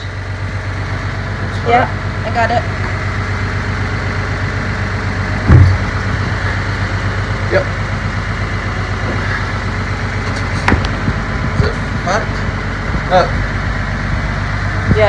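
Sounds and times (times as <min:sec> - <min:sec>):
bus engine idling: 0:00.0 - 0:15.0
thump: 0:05.4 - 0:06.0.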